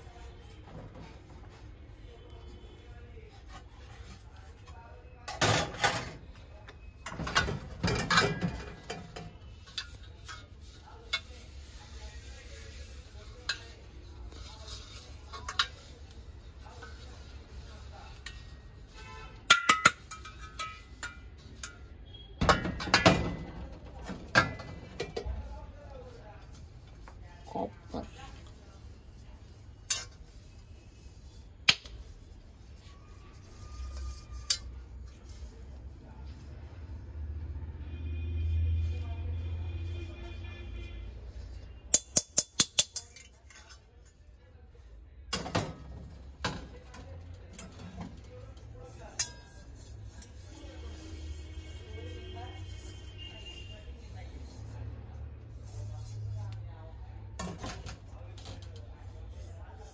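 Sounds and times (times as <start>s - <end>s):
metal vessels clinking: 7.0s - 11.5s, 18.2s - 25.4s, 29.8s - 30.3s.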